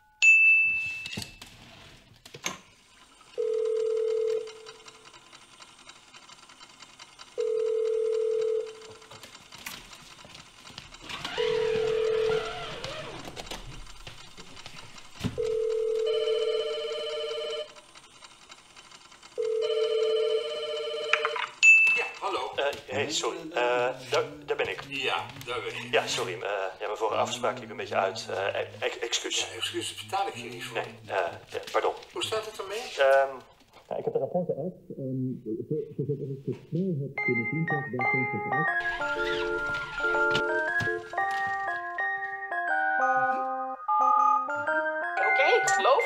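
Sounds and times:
telephone ringing tone beeps: 3.4s - 4.8s, 7.4s - 8.9s, 11.3s - 12.5s, 15.4s - 17.8s, 19.3s - 22.2s, 42.8s - 46.0s.

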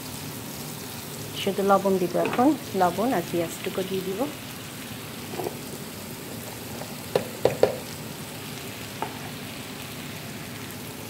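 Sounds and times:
vegetables sizzling in a pan: 0.0s - 11.0s
sharp knocks: 7.1s - 7.8s.

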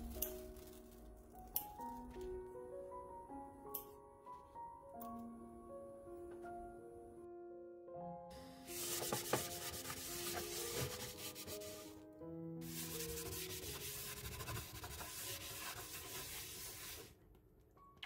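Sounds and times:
soft background music: 0.0s - 18.0s
paper towel scrubbing a pan: 8.7s - 11.9s, 12.6s - 17.1s.

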